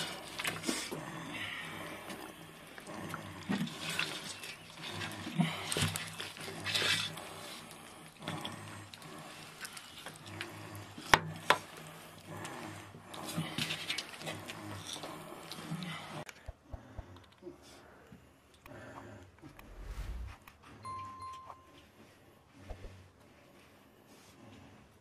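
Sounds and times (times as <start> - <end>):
faint low hum: 16.7 - 23.0.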